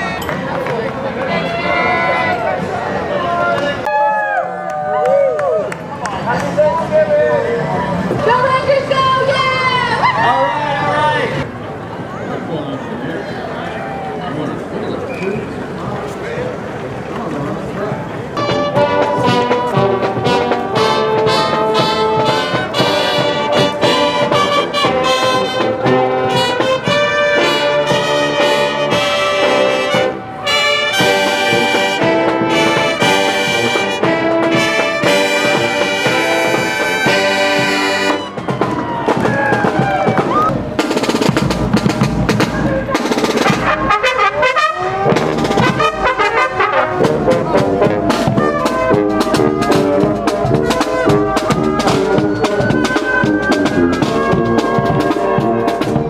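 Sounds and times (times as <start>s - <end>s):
drumming: 18.4s - 56.0s
marching brass band playing: 18.4s - 56.0s.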